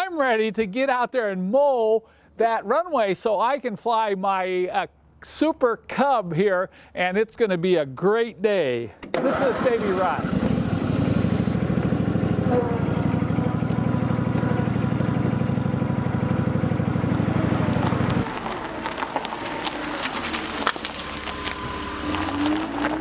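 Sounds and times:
small gasoline engine running: 9.2 - 22.8.

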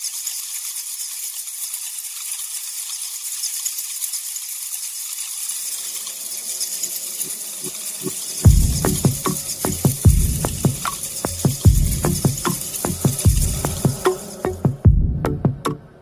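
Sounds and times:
high-pitched crackling hiss: 0.0 - 14.9
faint low rumbling: 11.5 - 16.0
soft low thuds: 14.7 - 15.8.

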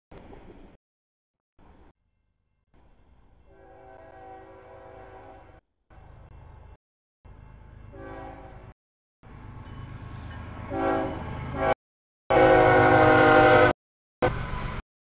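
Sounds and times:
locomotive horn blasts: 3.5 - 5.6, 7.9 - 8.7, 10.7 - 13.8.

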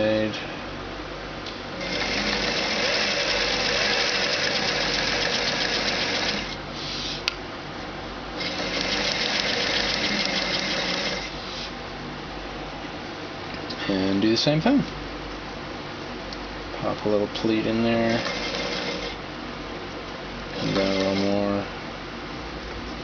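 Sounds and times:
sewing machine stitching: 1.8 - 6.6, 8.4 - 11.3, 18.1 - 19.2, 20.6 - 21.5.

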